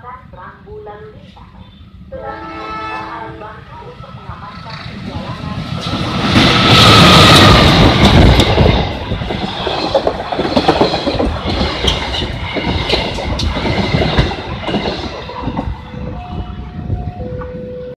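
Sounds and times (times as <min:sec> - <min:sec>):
diesel locomotive passing: 0:00.0 - 0:17.9
wheels clicking over rail joints: 0:04.7 - 0:15.7.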